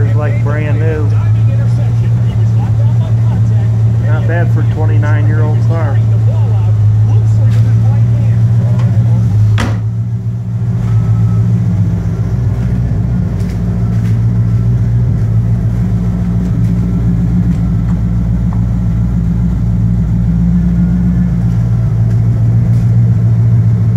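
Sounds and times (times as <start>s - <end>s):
car engine idling: 0.0s - 23.9s
sharp knock: 9.6s - 9.9s.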